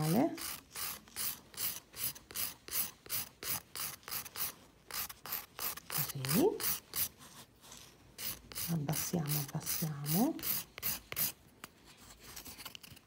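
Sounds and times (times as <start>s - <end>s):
nail file rasping: 0.0s - 7.2s, 8.2s - 11.4s.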